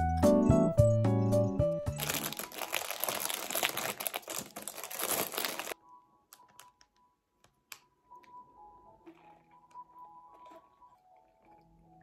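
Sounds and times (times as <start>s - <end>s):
plastic wrapper crinkling: 1.9s - 7.0s.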